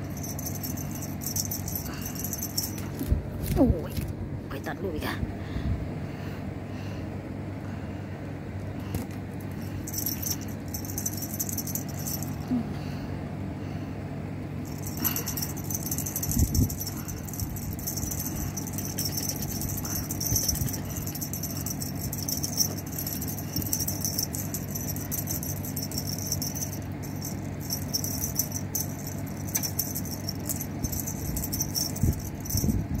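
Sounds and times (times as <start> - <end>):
cat toy rattling and jingling: 0.0 - 4.0, 8.9 - 12.4, 14.6 - 33.0
steady low hum: 0.0 - 33.0.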